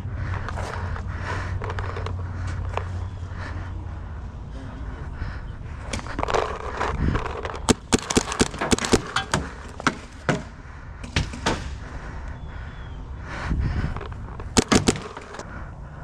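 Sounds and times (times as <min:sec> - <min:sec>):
paintball markers firing: 0:05.9 - 0:11.8, 0:14.0 - 0:15.4.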